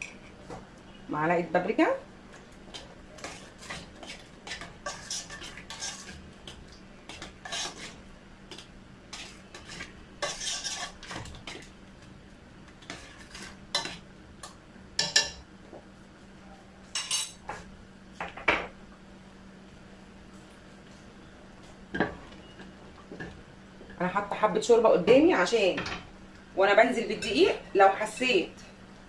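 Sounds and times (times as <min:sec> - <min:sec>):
spoon scraping a saucepan: 0:03.2 - 0:06.2, 0:07.1 - 0:08.0, 0:09.1 - 0:11.6.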